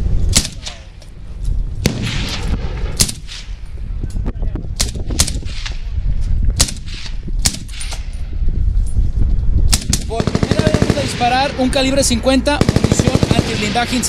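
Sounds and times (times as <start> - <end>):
suppressed rifle shots: 0.3 - 0.9, 1.8 - 3.6, 6.6 - 8.2, 9.7 - 11.5, 12.6 - 14.0.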